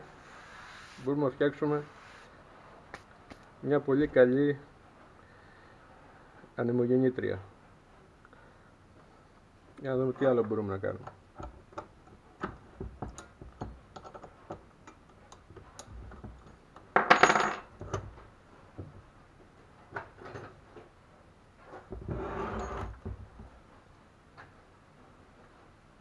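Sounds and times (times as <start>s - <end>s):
tools clicking on wooden workbench: 11.0s - 18.2s
metal scraping on workbench: 21.7s - 23.1s.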